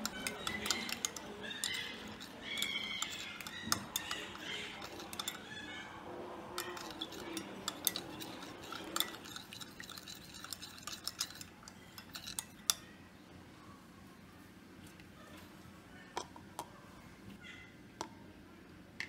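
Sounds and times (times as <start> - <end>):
metal spoon clinking on glass: 0.0 - 5.5, 6.6 - 12.9.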